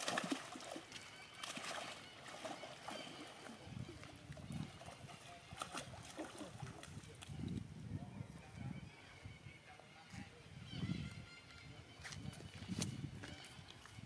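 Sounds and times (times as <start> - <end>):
water splashing and lapping: 0.0 - 7.7.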